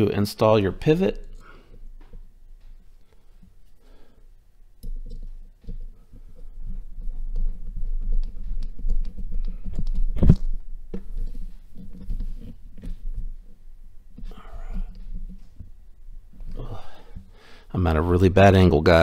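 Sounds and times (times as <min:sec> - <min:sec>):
rubbing and bumping on mat: 0:04.9 - 0:17.4.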